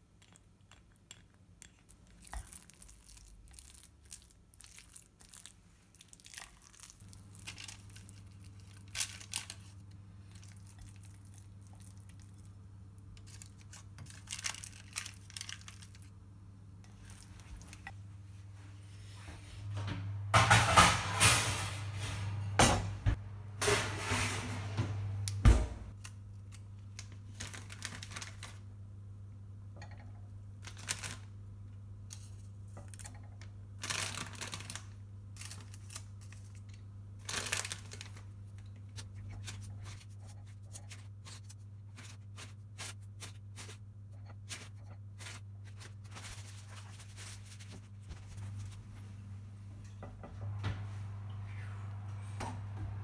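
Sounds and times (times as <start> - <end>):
kitchen clattering and rustling: 19.9 - 25.9.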